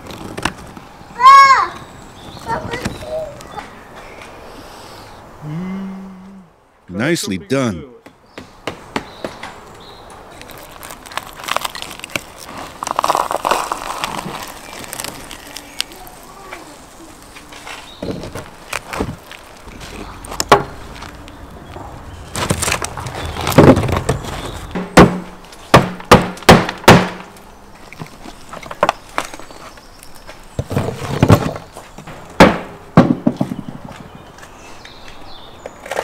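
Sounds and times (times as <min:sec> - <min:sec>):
crust crunching and cracking: 0:10.3 - 0:24.8.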